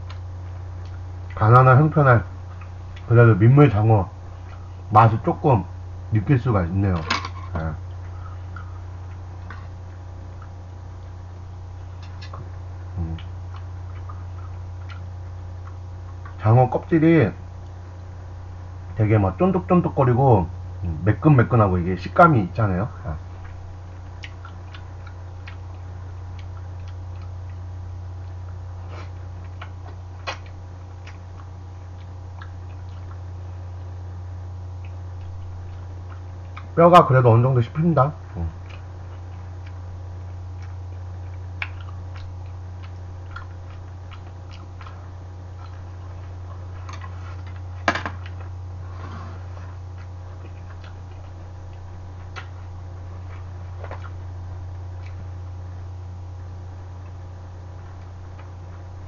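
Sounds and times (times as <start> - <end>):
steady low hum: 0.0 - 59.0
chewing with clicks and smacks: 2.5 - 3.1, 7.9 - 10.6, 12.0 - 16.4, 23.4 - 33.9, 34.7 - 36.8, 38.2 - 48.6, 49.5 - 55.3, 57.8 - 58.9.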